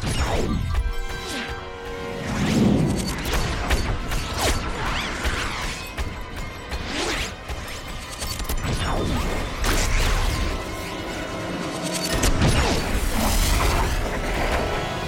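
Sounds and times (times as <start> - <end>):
sharp clicks and ticks: 2.5 - 10.4, 11.5 - 12.8.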